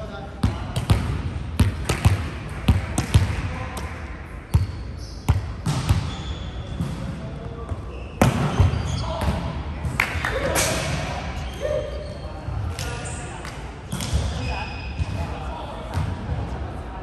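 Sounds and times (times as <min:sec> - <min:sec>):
volleyball slaps and thuds: 0:00.4 - 0:04.0, 0:04.6 - 0:06.1, 0:08.2 - 0:09.5, 0:13.9 - 0:14.4
shoe squeaks: 0:04.5 - 0:05.4, 0:06.0 - 0:06.8, 0:07.7 - 0:09.2, 0:11.4 - 0:13.3, 0:13.9 - 0:15.2.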